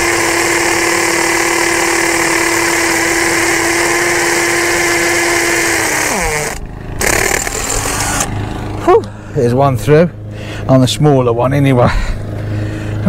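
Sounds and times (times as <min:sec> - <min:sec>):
power drill boring into masonry: 0:00.0 - 0:08.3.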